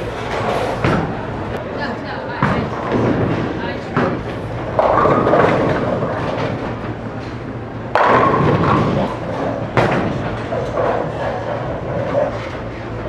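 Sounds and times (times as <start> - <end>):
bowling alley din: 0.0 - 13.0
bowling pins crashing: 0.2 - 1.4, 2.4 - 7.1, 7.9 - 12.4.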